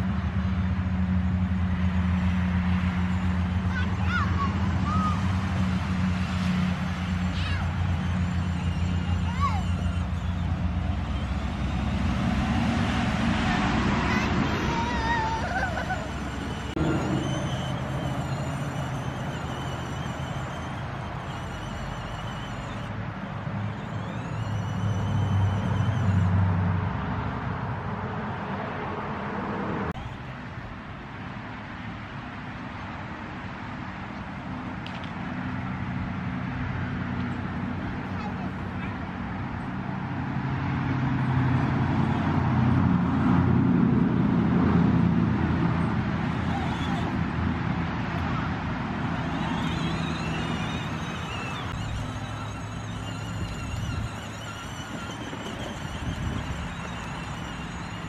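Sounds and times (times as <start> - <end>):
toy car electric motors whining: 0.0 - 26.6, 34.8 - 35.8, 36.9 - 43.4, 45.1 - 58.0
plastic wheels rolling over leaves: 49.0 - 58.0.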